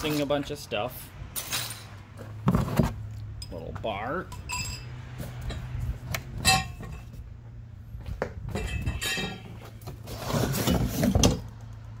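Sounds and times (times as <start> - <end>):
steel bars clinking in box: 1.4 - 2.0, 4.3 - 4.9, 6.4 - 7.1, 8.6 - 9.8.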